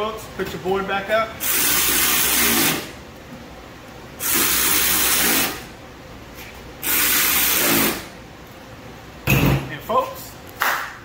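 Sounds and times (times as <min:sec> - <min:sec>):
power ratchet whirring: 0:01.4 - 0:02.9, 0:04.2 - 0:05.7, 0:06.8 - 0:08.1.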